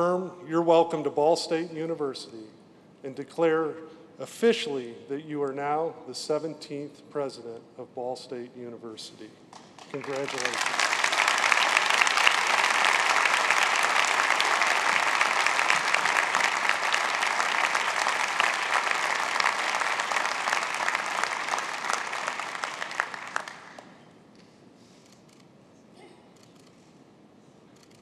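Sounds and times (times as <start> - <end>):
large audience applauding: 9.8 - 24.0.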